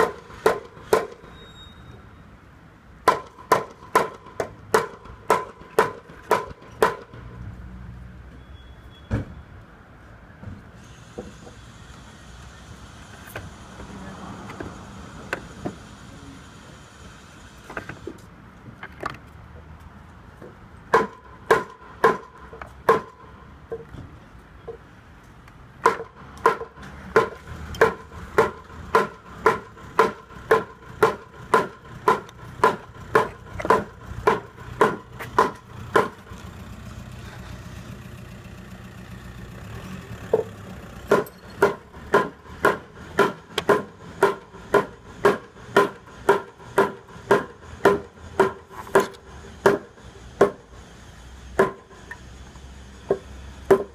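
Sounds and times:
hammering knocks with ringing: 0:00.0 - 0:01.3, 0:03.0 - 0:07.2, 0:20.9 - 0:23.9, 0:25.8 - 0:36.2, 0:41.1 - 0:50.6.

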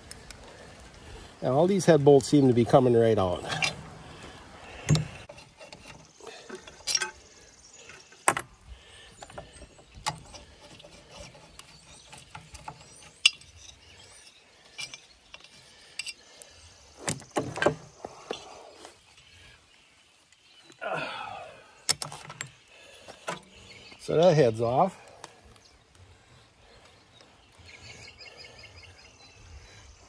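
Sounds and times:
metallic clinks of bolts: 0:08.2 - 0:08.5, 0:21.9 - 0:22.7.

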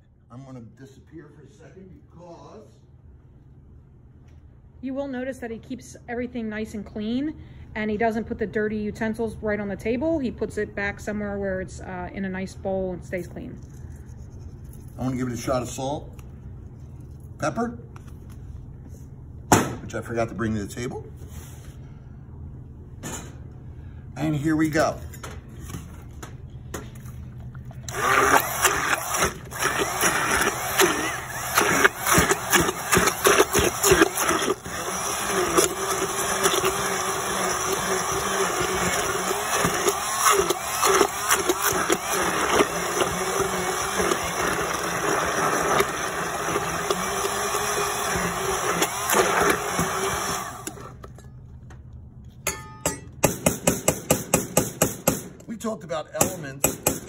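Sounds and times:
immersion blender running: 0:27.9 - 0:51.1.

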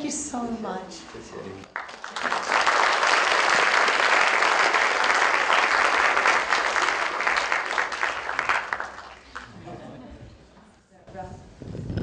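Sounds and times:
large audience applauding: 0:01.7 - 0:09.6.

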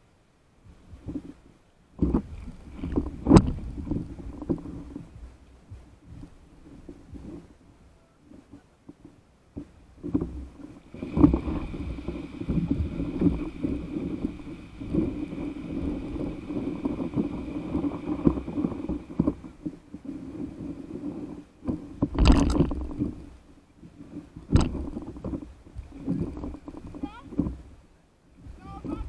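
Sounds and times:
water sloshing against board: 0:00.7 - 0:29.0
water splash: 0:21.6 - 0:23.3.

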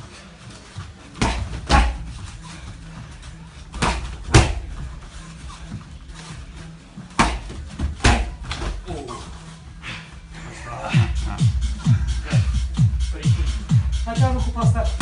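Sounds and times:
strikes smacking into pads: 0:01.2 - 0:02.0, 0:03.8 - 0:04.7, 0:07.2 - 0:08.8.

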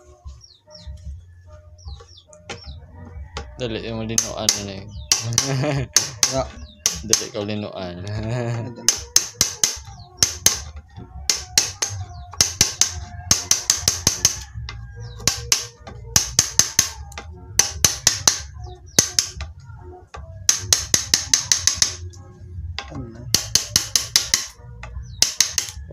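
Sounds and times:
hammer striking steel chisel: 0:04.1 - 0:07.5, 0:08.8 - 0:19.5, 0:20.4 - 0:22.1, 0:22.8 - 0:25.9.

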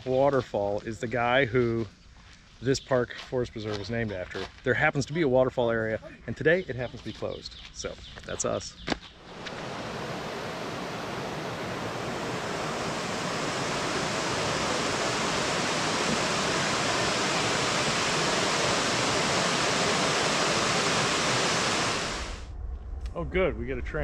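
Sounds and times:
water rushing over rocks: 0:09.3 - 0:22.4.

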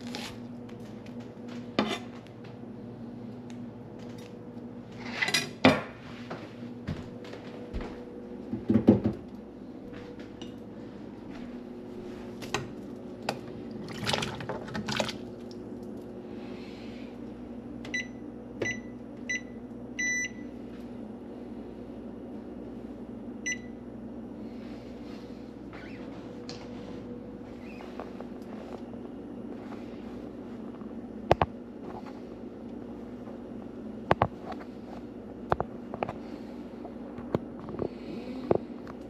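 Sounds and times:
appliance keypad beeps: 0:17.9 - 0:20.5, 0:23.4 - 0:23.8.

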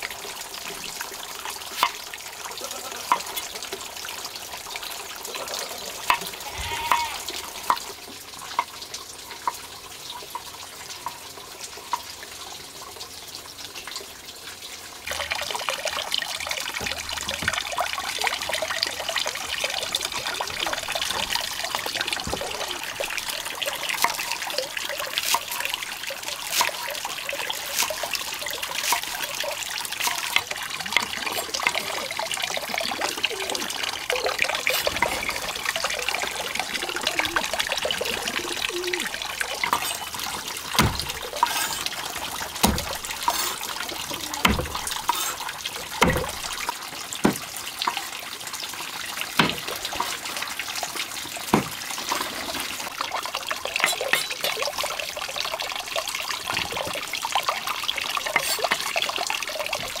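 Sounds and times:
water trickling: 0:00.0 - 1:00.0
cleaver chopping on wooden board: 0:40.8 - 0:41.8, 0:42.6 - 0:43.5, 0:44.4 - 0:45.3, 0:46.0 - 0:46.4, 0:49.4 - 0:49.6, 0:51.5 - 0:51.8.

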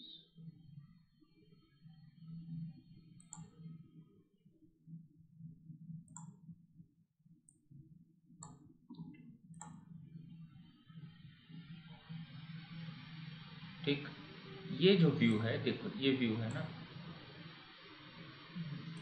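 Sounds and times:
faint low hum: 0:00.0 - 0:19.0
computer mouse clicking: 0:03.2 - 0:03.7, 0:06.0 - 0:06.5, 0:08.4 - 0:09.9, 0:16.5 - 0:16.7
soft hiss: 0:09.6 - 0:19.0.

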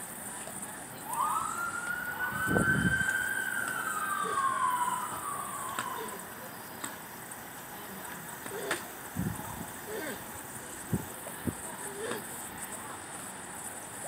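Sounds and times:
emergency vehicle siren wail: 0:01.0 - 0:06.5.

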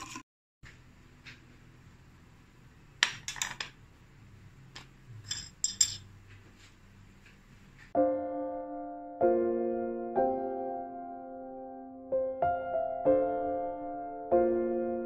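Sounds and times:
glass plate clinking on table: 0:05.2 - 0:06.1
slow piano chords: 0:07.9 - 0:15.0.

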